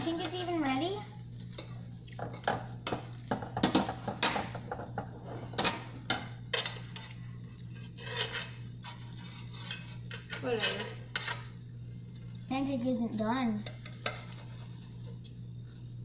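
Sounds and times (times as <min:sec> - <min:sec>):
steady low hum: 0:00.0 - 0:16.0
metal spatula scraping frying pan: 0:06.5 - 0:11.6, 0:13.6 - 0:15.2.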